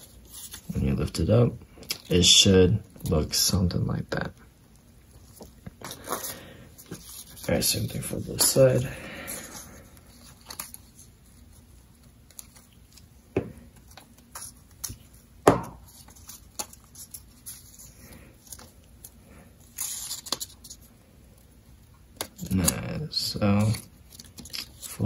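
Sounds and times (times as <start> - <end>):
paper rustling: 0.0 - 1.2, 5.2 - 15.2, 15.8 - 20.9, 22.2 - 25.0.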